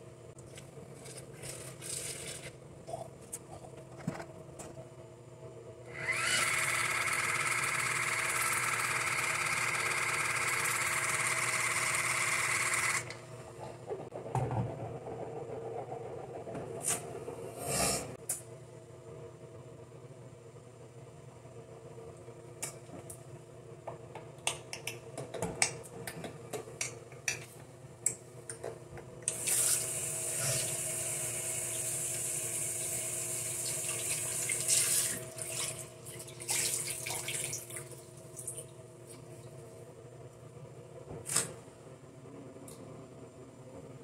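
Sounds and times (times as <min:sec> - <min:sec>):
water running from a tap: 0:31.7 - 0:37.9.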